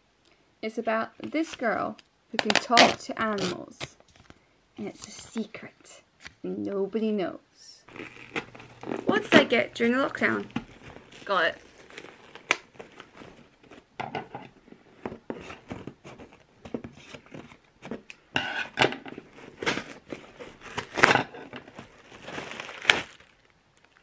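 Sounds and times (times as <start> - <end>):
packing tape ripping: 7.9 - 13.8, 19.2 - 24.0
plastic bag crinkling: 7.9 - 18.1, 19.1 - 24.0.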